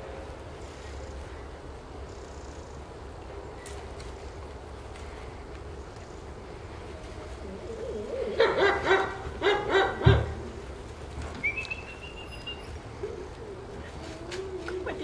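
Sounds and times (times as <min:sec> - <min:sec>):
puppies yapping: 0:07.7 - 0:10.6.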